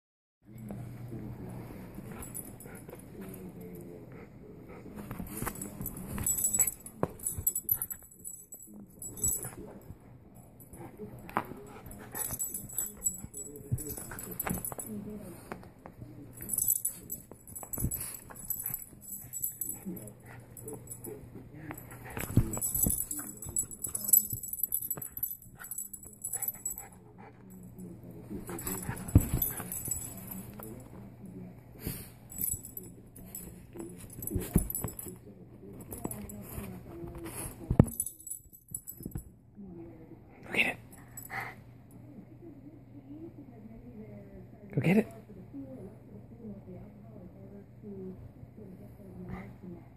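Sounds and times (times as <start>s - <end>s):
toy ball jingling and rattling: 5.4s - 9.8s, 11.6s - 15.2s, 16.4s - 21.2s, 21.8s - 30.9s, 32.3s - 35.2s, 35.8s - 36.4s.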